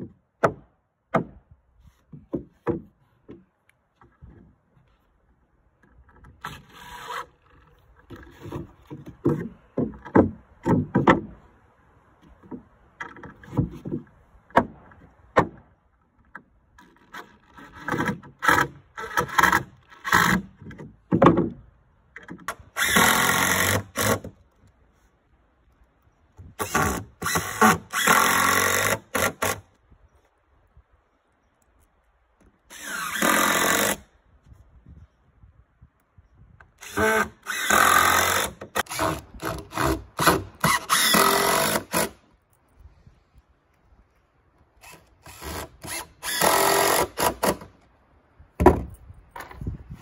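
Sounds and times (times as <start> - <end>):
knocks of wood on wood: 2.1 - 4.4, 8.1 - 11.4, 12.2 - 15.7, 17.8 - 21.6, 48.6 - 49.8
cordless drill driving screws: 22.8 - 24.3, 26.6 - 29.6, 32.7 - 34.0, 36.8 - 42.2, 44.8 - 47.7.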